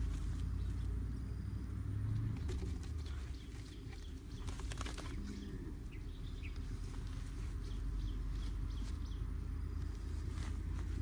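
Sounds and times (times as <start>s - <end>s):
bird chirps: 2.8s - 10.0s.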